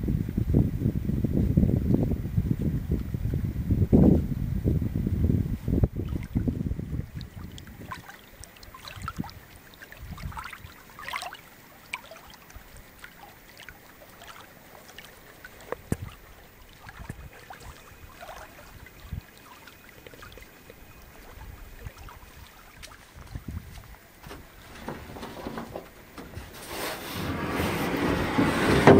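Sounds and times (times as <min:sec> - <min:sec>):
little water splashes: 0:05.9 - 0:28.9
waves lapping on pebbles: 0:07.1 - 0:28.9.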